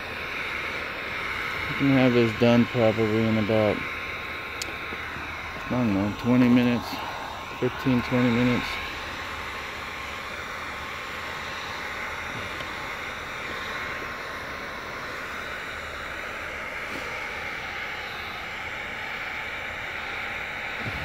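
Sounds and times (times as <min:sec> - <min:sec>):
heat gun blowing air: 0:00.0 - 0:21.0.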